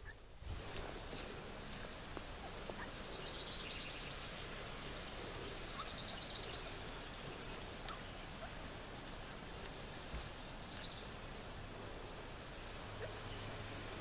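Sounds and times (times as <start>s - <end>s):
outdoor background noise: 0.0s - 14.0s
bird chirps: 2.8s - 8.6s, 10.1s - 11.2s.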